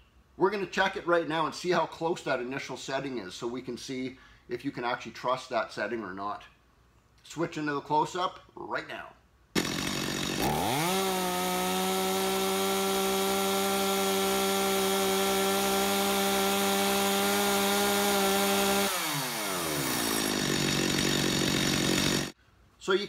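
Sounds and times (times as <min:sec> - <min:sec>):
chainsaw engine revving: 0:09.6 - 0:22.4.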